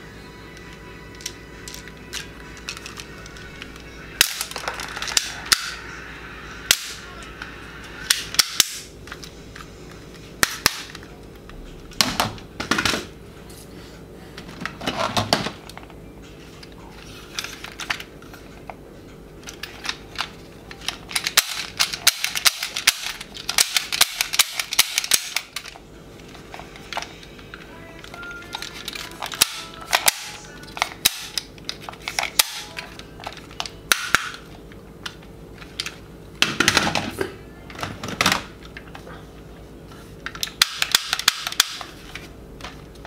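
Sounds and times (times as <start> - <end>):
plastic toy guns clattering: 19.4 - 25.8, 40.3 - 41.9.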